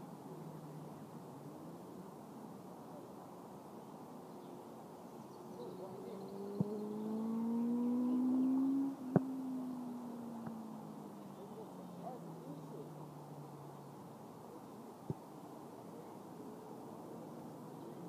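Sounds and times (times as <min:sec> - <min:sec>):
motor hum rising in pitch: 0:06.3 - 0:10.1.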